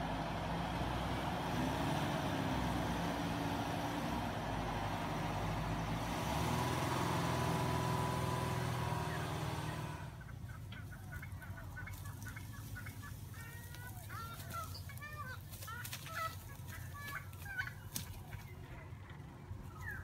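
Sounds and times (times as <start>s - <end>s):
car engine running: 0.0s - 20.0s
birds chirping: 8.3s - 20.0s.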